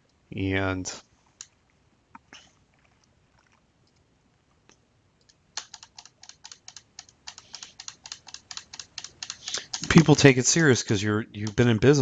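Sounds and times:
keyboard keys clicking: 5.6 - 10.3, 11.4 - 12.0.

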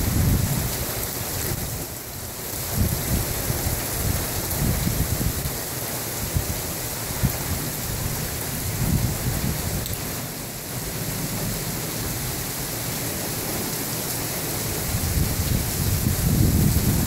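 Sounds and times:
rain hissing: 0.0 - 17.0
low thunder rumbling: 14.7 - 17.0.

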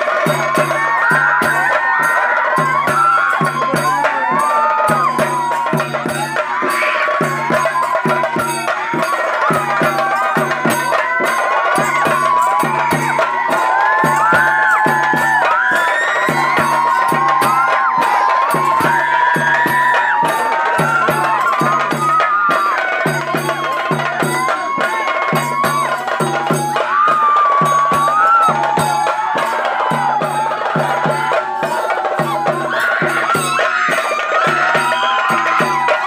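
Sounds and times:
drums beating fast rhythm: 0.0 - 36.0.

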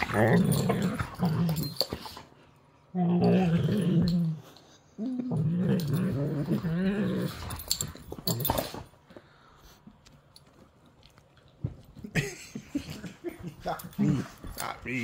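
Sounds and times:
dog growling: 0.0 - 2.0, 2.9 - 8.7.

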